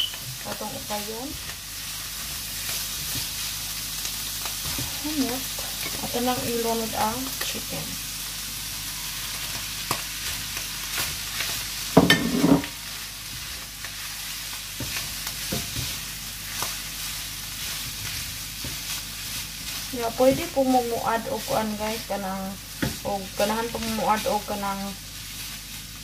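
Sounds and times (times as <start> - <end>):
food sizzling in a frying pan: 0.0 - 26.0
spatula scraping and tapping pan: 9.5 - 12.8, 14.8 - 16.8.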